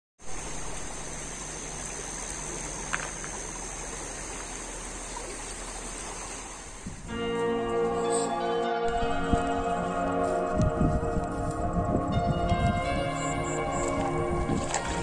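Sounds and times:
river water rushing over rocks: 0.2 - 6.8, 13.1 - 15.0.

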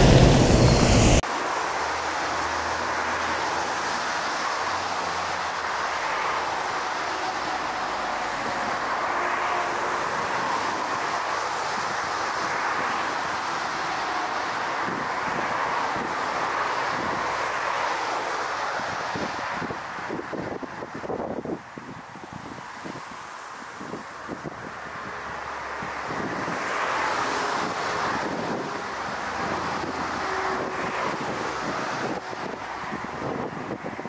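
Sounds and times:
jet engines roaring: 0.0 - 20.5, 24.4 - 34.0
wind on microphone: 2.7 - 17.6, 18.5 - 34.0.

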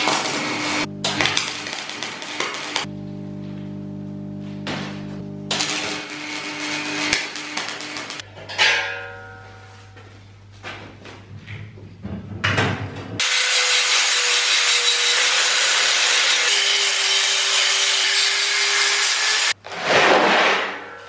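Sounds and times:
angle grinder cutting steel: 0.0 - 2.9, 5.5 - 8.2, 13.2 - 19.6.

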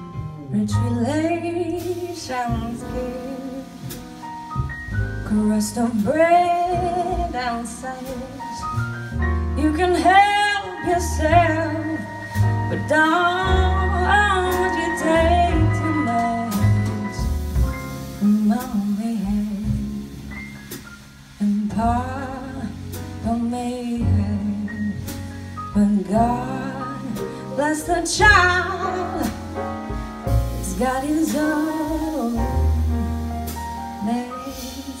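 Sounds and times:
drums: 0.0 - 35.0
piano: 0.0 - 35.0
upright bass: 0.0 - 35.0
woman singing jazz ballad: 0.0 - 35.0.

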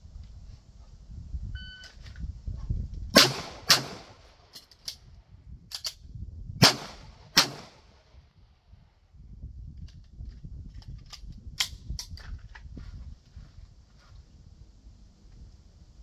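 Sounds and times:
handgun shots: 3.2 - 4.1
pistol reloading clicks: 4.5 - 5.1, 5.7 - 6.0, 9.8 - 12.3.

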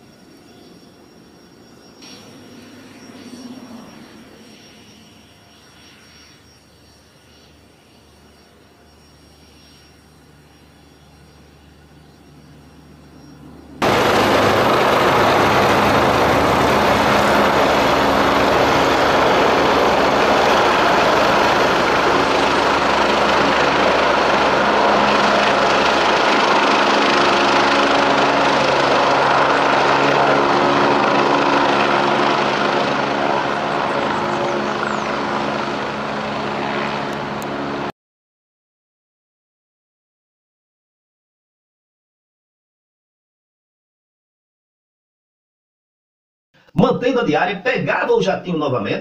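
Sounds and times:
helicopter engine and rotor: 0.0 - 37.9.

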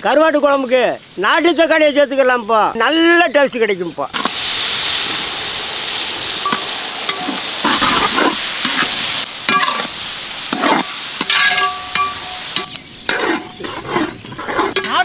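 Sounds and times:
tomatoes sizzling in hot oil: 3.6 - 15.0
metal ladle scraping a pot: 10.5 - 15.0.

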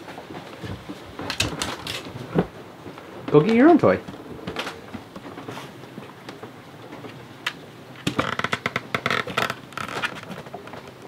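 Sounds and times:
dog claws clicking on floor: 1.2 - 2.1.

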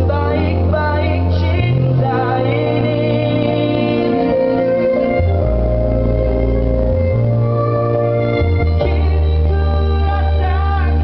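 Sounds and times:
man singing amplified: 0.0 - 5.5
band backing music: 0.0 - 11.0.

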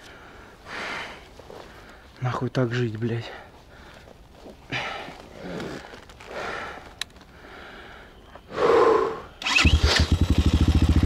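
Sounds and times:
heavy breathing: 0.0 - 2.2, 3.2 - 9.3
motorcycle engine idling: 9.4 - 11.0.

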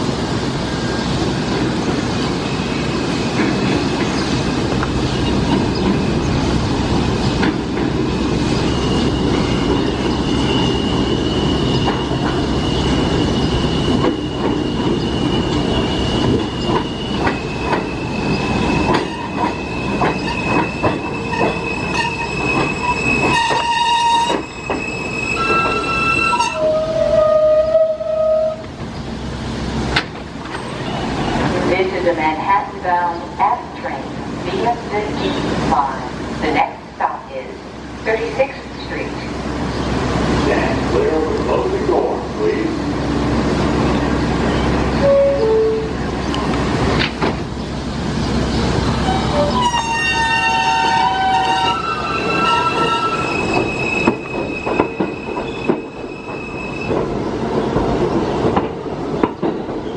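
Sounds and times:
wheels rumbling on rail: 0.0 - 59.9
high wheel squeal: 8.2 - 28.5, 49.0 - 57.0.

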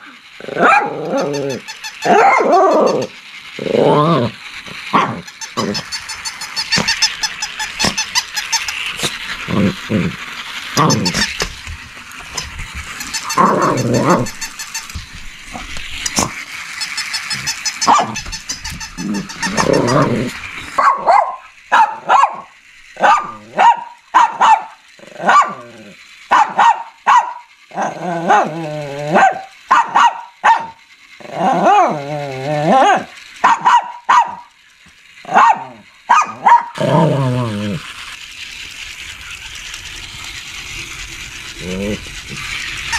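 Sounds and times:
dog yapping: 0.4 - 3.2, 4.9 - 9.2, 17.2 - 30.8, 31.4 - 34.5, 35.3 - 37.1
dog growling: 0.4 - 5.8, 9.0 - 11.3, 13.3 - 14.4, 19.0 - 20.4, 25.0 - 26.0, 27.7 - 29.4, 31.2 - 33.1, 36.7 - 37.9, 41.6 - 42.4.

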